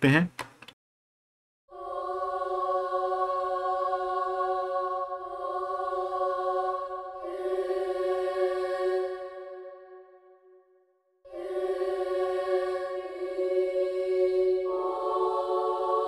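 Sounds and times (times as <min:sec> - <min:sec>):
children's choir chord: 0:11.3 - 0:16.0.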